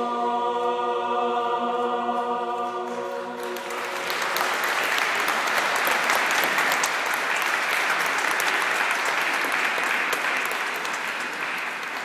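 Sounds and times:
audience applauding: 3.4s - 12.0s.

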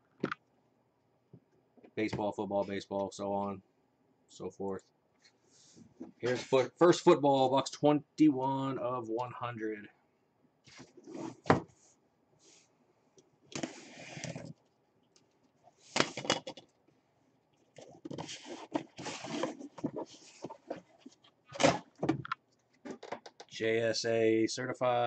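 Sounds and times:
cardboard scraping and rustling: 10.7s - 11.7s, 13.6s - 14.6s, 17.8s - 22.2s.

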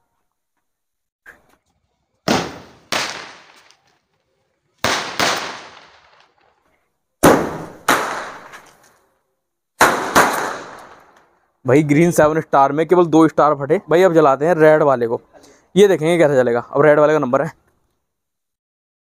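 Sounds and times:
firework bangs: 2.2s - 4.0s, 4.8s - 6.5s, 7.2s - 8.9s, 9.8s - 11.2s.

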